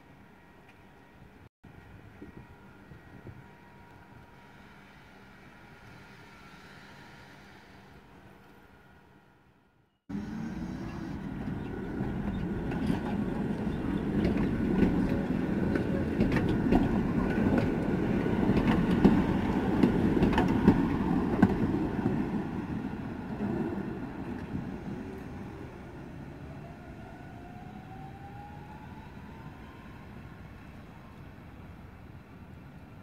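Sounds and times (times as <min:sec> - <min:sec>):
tram wheels rumbling on rails: 0:10.1 - 0:33.0.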